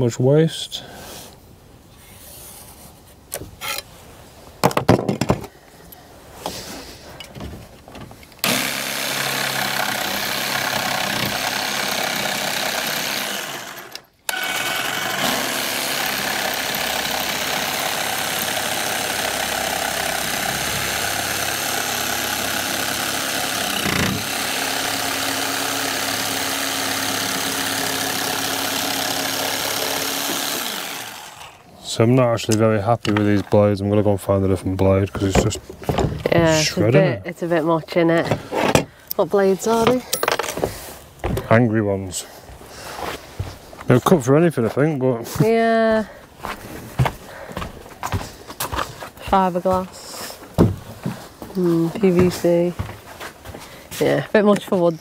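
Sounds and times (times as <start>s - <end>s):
jigsaw cutting wood: 8.4s - 31.7s.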